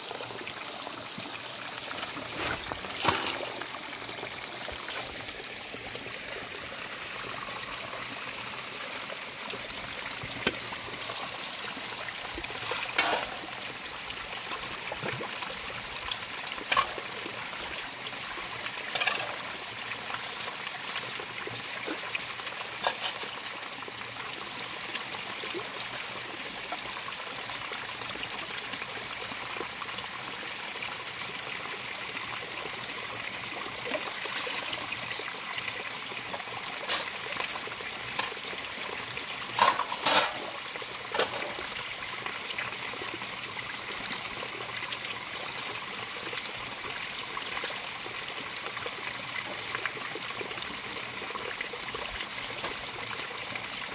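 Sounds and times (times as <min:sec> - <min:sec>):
stream trickling over rocks: 0:00.0 - 0:53.9
metal pots and plates clinking: 0:02.4 - 0:03.6, 0:12.7 - 0:13.6, 0:39.5 - 0:41.7.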